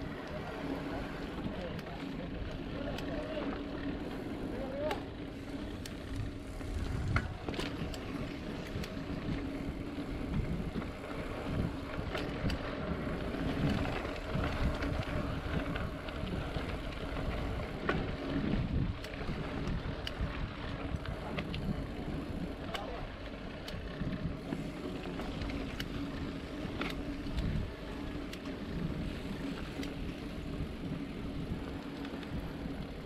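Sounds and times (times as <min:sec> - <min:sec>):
bike rattles and clicks: 0:00.0 - 0:33.0
bike tyres rumbling on dirt: 0:00.0 - 0:33.0
wind on microphone: 0:06.4 - 0:07.5.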